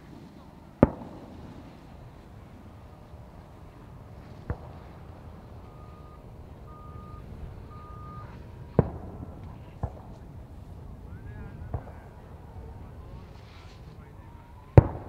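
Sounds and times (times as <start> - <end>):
fireworks bangs: 0.0 - 15.0
reversing beeper: 5.4 - 8.7.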